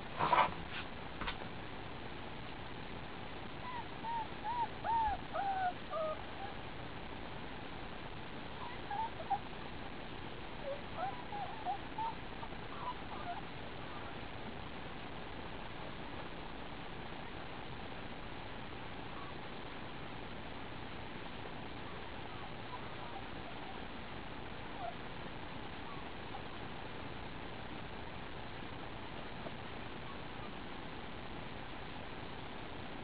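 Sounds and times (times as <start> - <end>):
puppies squeaking and whimpering: 3.6 - 6.6, 8.6 - 9.4, 10.7 - 14.1.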